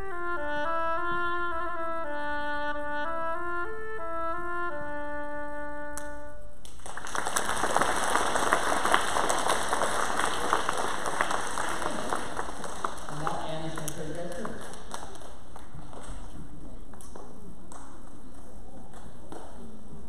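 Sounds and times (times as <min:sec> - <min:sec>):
solo oboe melody: 0:00.0 - 0:06.6
audience applause: 0:06.7 - 0:16.3.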